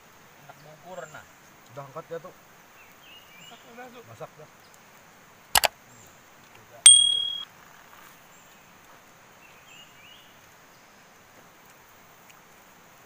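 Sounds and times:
bell ding: 6.9 - 7.4.

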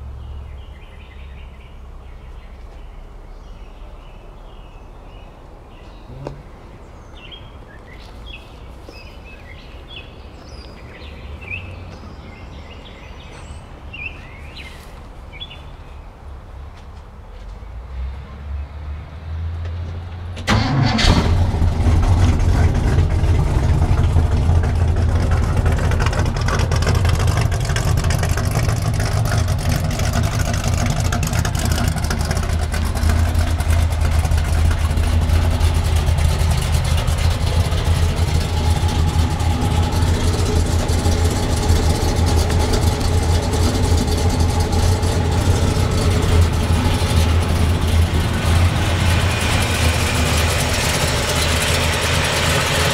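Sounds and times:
car engine starting and idling: 20.0 - 52.9.

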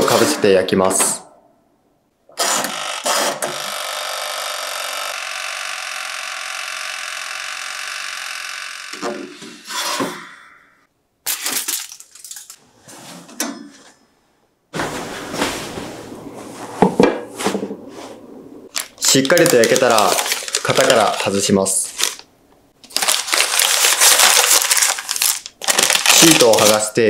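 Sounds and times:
timer dial whirring: 2.5 - 9.0
aluminium foil rustling: 11.3 - 12.6, 18.7 - 27.0.

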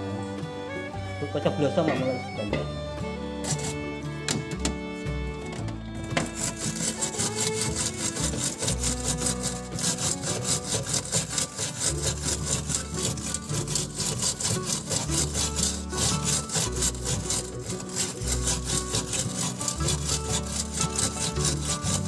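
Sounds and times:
background music: 0.0 - 22.0
wire brush scrubbing metal: 3.4 - 3.8, 6.0 - 22.0.

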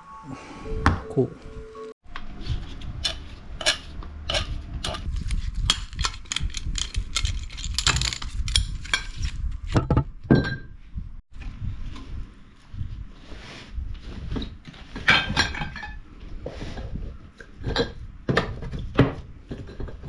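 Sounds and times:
metallic clicks and clinks: 5.6 - 9.0.

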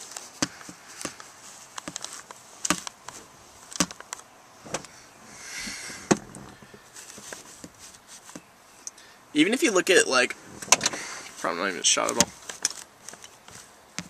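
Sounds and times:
soft rush of noise: 0.0 - 14.0.

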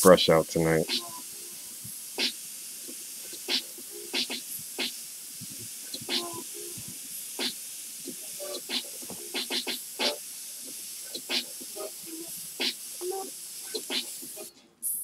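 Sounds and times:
airbrush hissing: 0.0 - 15.0
sharp air bursts: 0.0 - 15.0.

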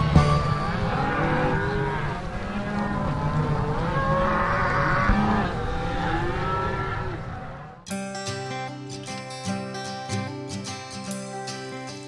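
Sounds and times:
cows and calves bawling: 0.0 - 7.8.

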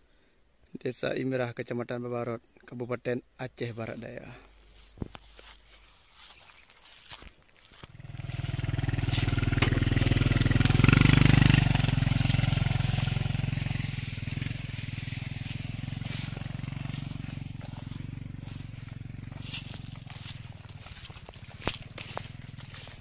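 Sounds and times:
engine running: 7.0 - 23.0.

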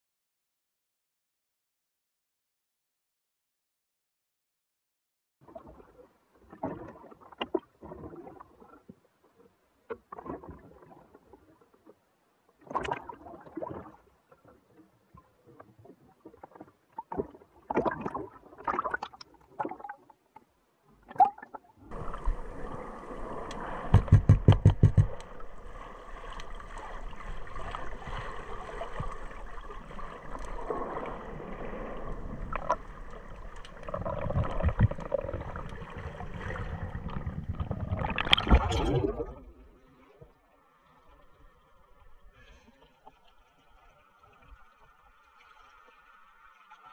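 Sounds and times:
sea water splashing: 12.6 - 20.2, 21.0 - 40.3
muffled underwater rush: 21.0 - 46.9
loud thumps underwater: 23.8 - 25.4.

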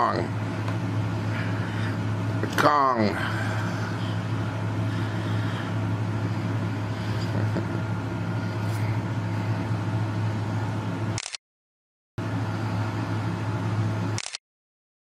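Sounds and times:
box fan humming: 0.0 - 11.2, 12.2 - 14.3.

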